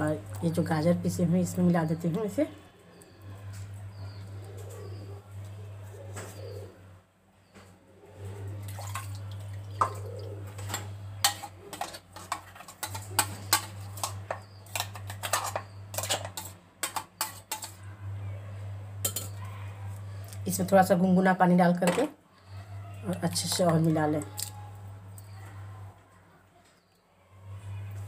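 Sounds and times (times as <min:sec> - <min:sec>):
steady low hum: 0:00.0 - 0:26.0
steel kitchenware clinking: 0:09.8 - 0:17.8, 0:19.0 - 0:19.4.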